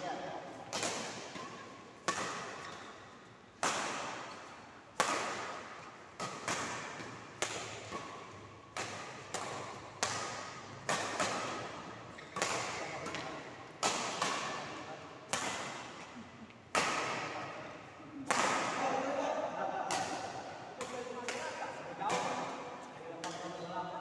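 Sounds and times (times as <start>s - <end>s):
rackets striking shuttlecock: 0.6s - 18.9s.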